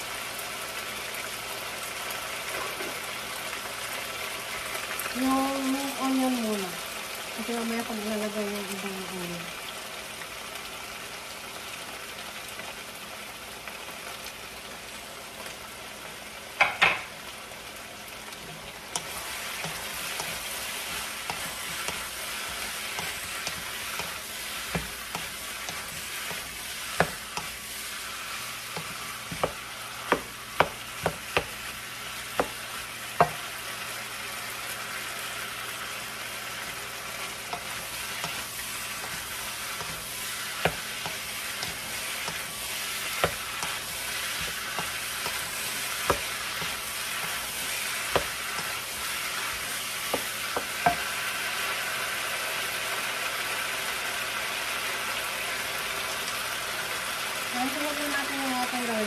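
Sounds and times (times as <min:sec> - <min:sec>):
meat sizzling in a pan: 0:00.0 - 0:59.0
wooden spatula clacking on pan: 0:28.7 - 0:31.5, 0:39.0 - 0:42.5, 0:43.1 - 0:48.8, 0:50.1 - 0:51.1.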